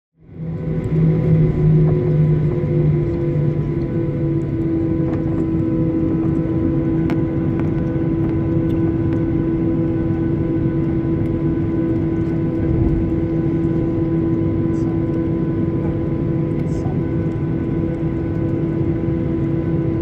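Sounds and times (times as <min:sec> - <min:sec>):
jet engine hum and cabin drone: 0:00.2 - 0:20.0
brief low rumble: 0:12.6 - 0:13.6.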